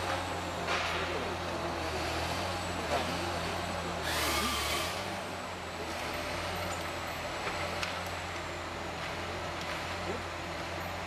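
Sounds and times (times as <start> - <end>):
heavy machine engine running: 0.0 - 11.0
loud hiss and squeal: 4.0 - 5.2.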